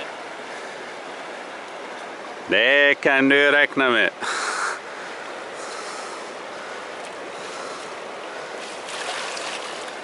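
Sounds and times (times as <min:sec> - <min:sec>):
fast-flowing river rushing: 0:04.1 - 0:10.0.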